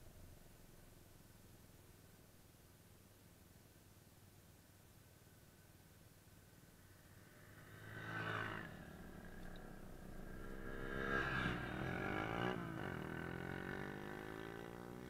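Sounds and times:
motorcycle engines revving: 0:07.2 - 0:15.0.

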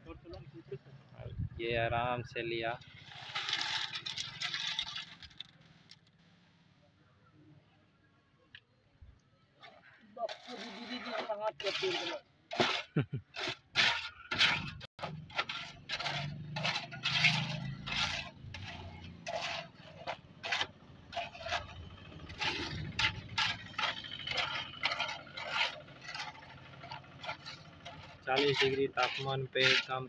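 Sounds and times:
trowel scraping wet concrete: 0:02.8 - 0:05.6, 0:09.6 - 0:30.0.

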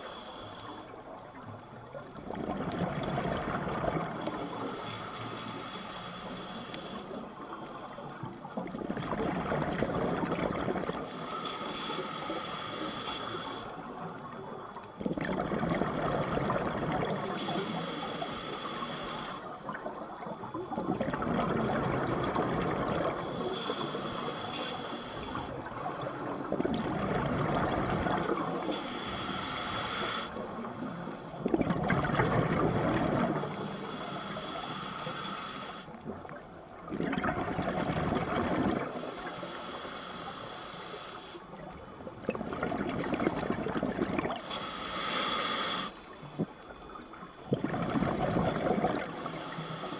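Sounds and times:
regulator inhalation: 0:00.0 - 0:00.9, 0:04.4 - 0:07.3, 0:11.1 - 0:13.8, 0:17.1 - 0:19.5, 0:23.1 - 0:25.6, 0:28.4 - 0:30.4, 0:33.5 - 0:36.0, 0:44.4 - 0:46.0, 0:49.1 - 0:49.9
exhaled air bubbling underwater: 0:00.0 - 0:39.6, 0:41.3 - 0:49.9.

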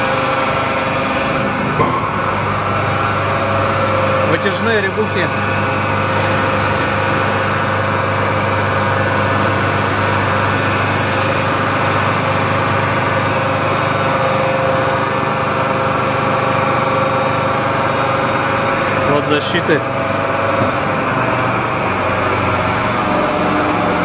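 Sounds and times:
saw machine humming: 0:00.0 - 0:24.0.

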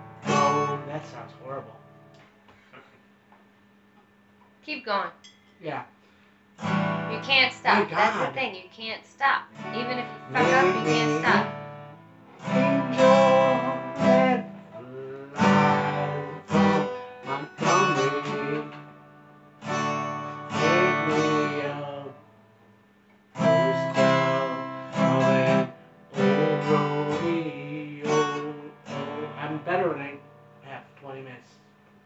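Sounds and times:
acoustic guitar strummed: 0:00.0 - 0:02.1, 0:06.6 - 0:08.5, 0:09.5 - 0:22.6, 0:23.3 - 0:31.2.

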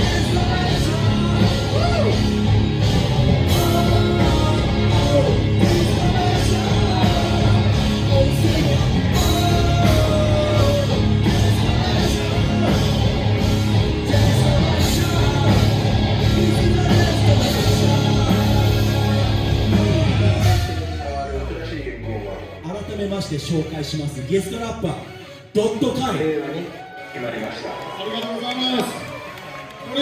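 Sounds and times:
electric guitar: 0:00.0 - 0:21.0
drums keeping steady beat: 0:00.0 - 0:21.4
rock band playing live: 0:00.0 - 0:26.3.

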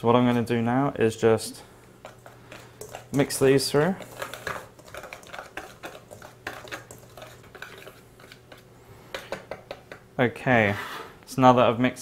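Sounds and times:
utensil scraping metal bowl: 0:02.0 - 0:09.9.

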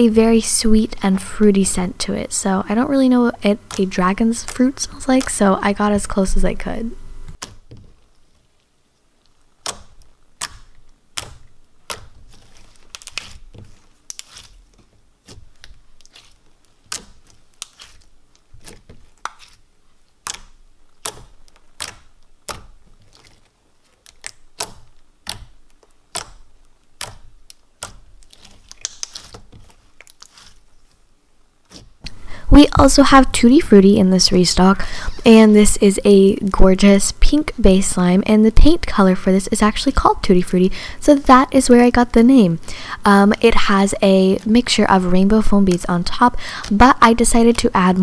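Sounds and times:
slime kneaded with clicks and pops: 0:02.0 - 0:06.4, 0:07.2 - 0:31.0, 0:31.6 - 0:32.2.

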